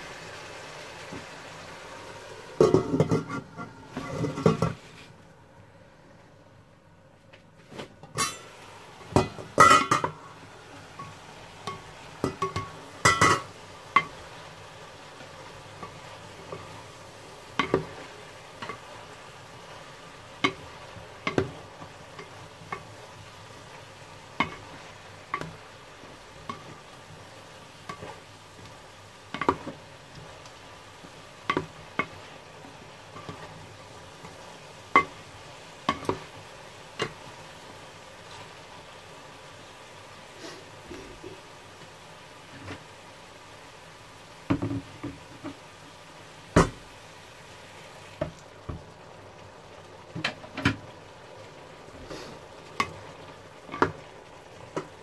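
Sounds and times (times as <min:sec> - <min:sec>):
vegetables sizzling in a pan: 0:00.0 - 0:06.0, 0:07.7 - 0:55.0
metal lid clanking: 0:02.6 - 0:04.8, 0:08.2 - 0:08.5, 0:09.1 - 0:10.2, 0:11.7 - 0:13.5
spatula knocking against pan: 0:20.4 - 0:22.9, 0:24.4 - 0:24.7, 0:29.3 - 0:29.8, 0:31.4 - 0:32.2, 0:34.9 - 0:35.2, 0:35.9 - 0:36.3.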